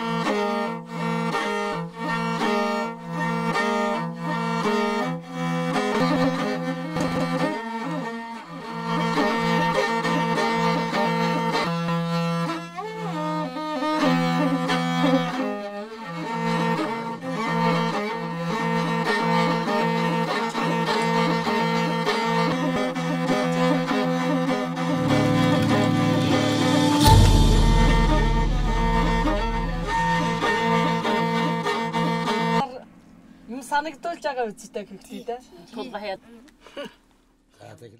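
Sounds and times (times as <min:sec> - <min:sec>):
bowed fiddle slow melody: 0:00.0 - 0:34.4
low held drone note: 0:24.8 - 0:30.9.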